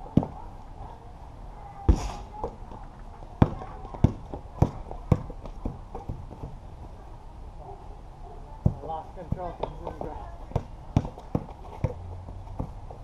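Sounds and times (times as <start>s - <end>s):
basketball bouncing on concrete: 3.4s - 6.6s, 8.6s - 13.0s.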